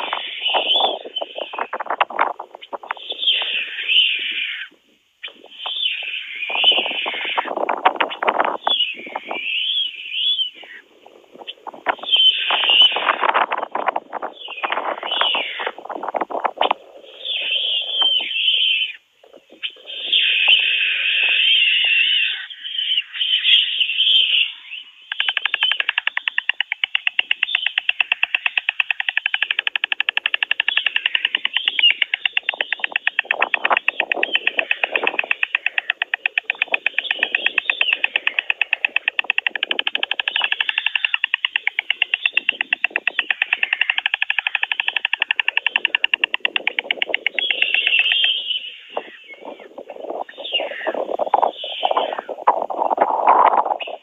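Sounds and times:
storks clattering bills: 25.1s - 48.4s
wing-flapping rustles: 25.1s - 48.4s.

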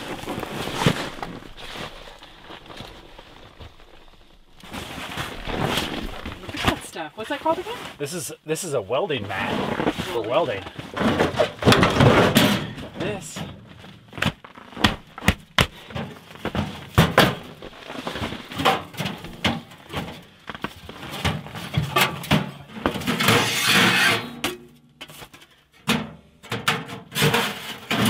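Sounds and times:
scraping rustle: 0.0s - 8.0s.

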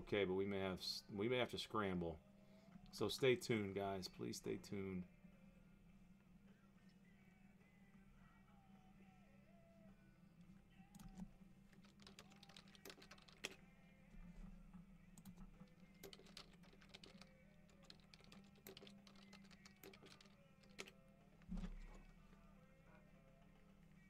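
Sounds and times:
typing on keyboard: 11.0s - 13.6s, 15.2s - 21.0s.

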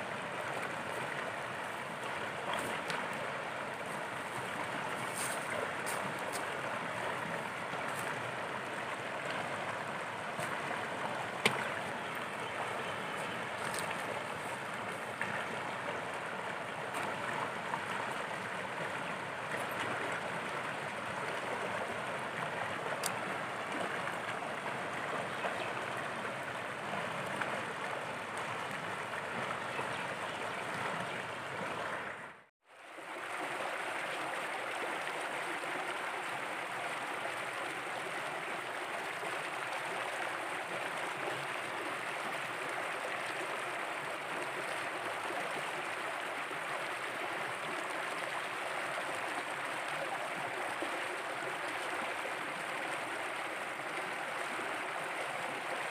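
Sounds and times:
stream running over rocks: 0.0s - 55.9s.

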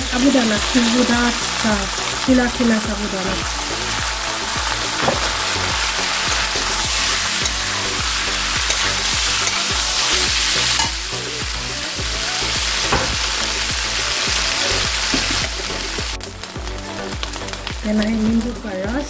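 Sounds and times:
food sizzling in a wok: 0.0s - 19.0s
metal spatula scraping: 4.8s - 11.0s.

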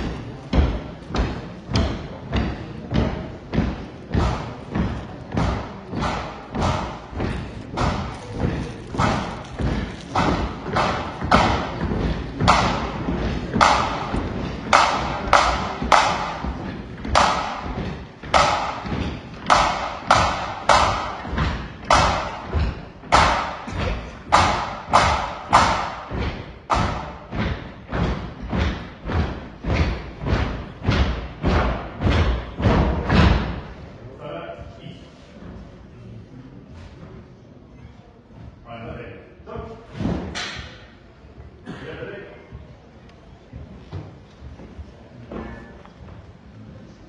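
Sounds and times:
marching drums beating: 0.0s - 33.6s.

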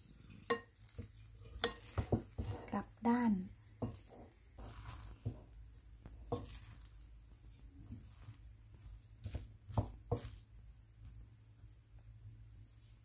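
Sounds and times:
sticky rice squishing: 0.0s - 13.0s
spoon tapping glass bowl: 0.4s - 0.7s, 1.5s - 2.5s.

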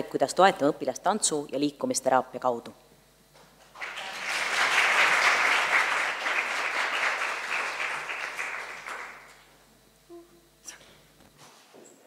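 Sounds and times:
audience applauding: 3.7s - 9.4s.

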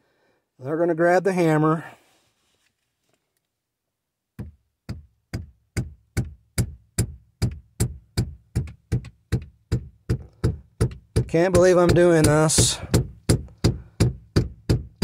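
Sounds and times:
rubber mallet thudding on shift knob: 4.4s - 15.0s.

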